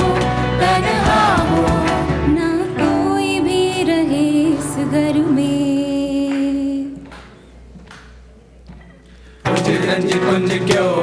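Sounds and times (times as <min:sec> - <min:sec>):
choir singing long notes: 0:00.0 - 0:02.4
band accompaniment: 0:00.0 - 0:03.6, 0:09.2 - 0:11.0.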